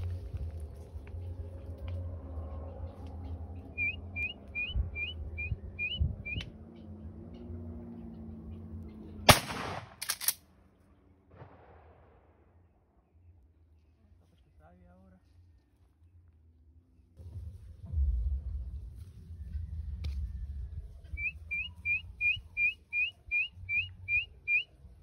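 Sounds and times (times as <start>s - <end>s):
bird chirping: 0.7s - 9.2s, 21.0s - 24.8s
loud shotgun blast: 9.3s - 10.2s.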